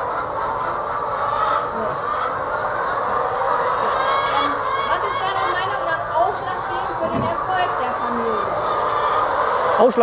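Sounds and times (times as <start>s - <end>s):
hens clucking in chorus: 0.0s - 10.0s.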